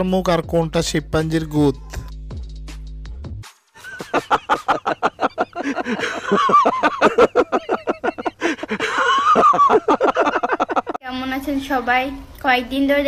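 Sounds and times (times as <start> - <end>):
men laughing heartily: 3.8 - 11.0.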